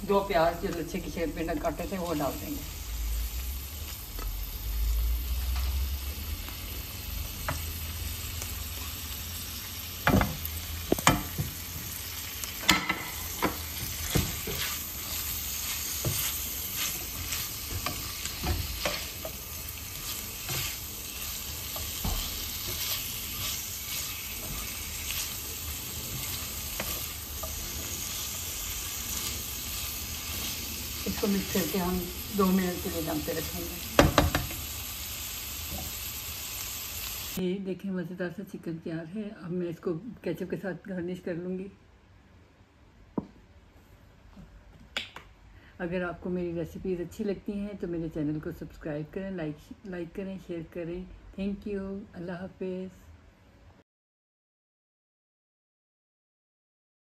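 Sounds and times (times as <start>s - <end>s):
chicken sizzling in oil: 1.1s - 37.4s.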